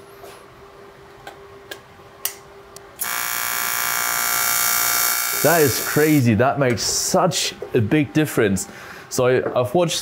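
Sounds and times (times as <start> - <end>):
welding arc buzzing: 3.0 - 6.3.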